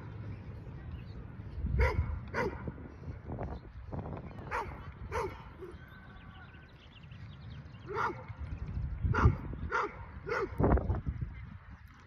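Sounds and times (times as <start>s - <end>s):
wind rumble on microphone: 0.0s - 12.0s
dog barking: 1.8s - 2.7s, 4.5s - 5.8s, 7.9s - 8.3s, 9.1s - 10.6s.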